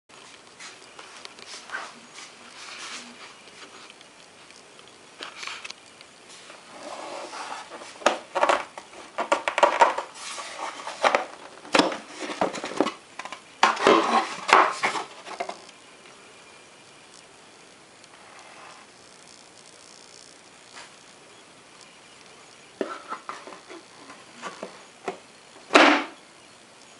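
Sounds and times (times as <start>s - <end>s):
quiet handling and rubbing: 0.2s - 15.7s, 18.1s - 21.2s, 21.9s - 25.3s
plastic cover clacking on magnets: 8.0s - 10.1s.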